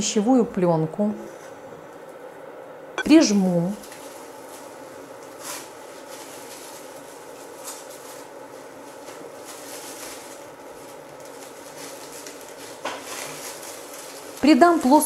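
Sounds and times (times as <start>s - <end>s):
cling film crinkling: 3.8s - 15.0s.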